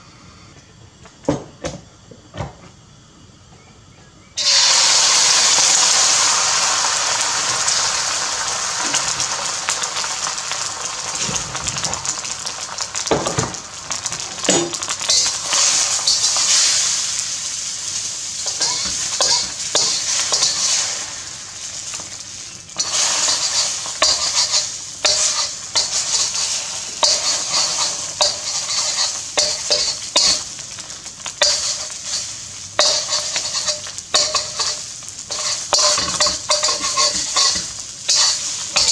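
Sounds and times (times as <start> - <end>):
egg sizzling in hot oil: 4.4 - 38.9
metal spatula scraping wok: 14.4 - 17.2, 18.4 - 38.9.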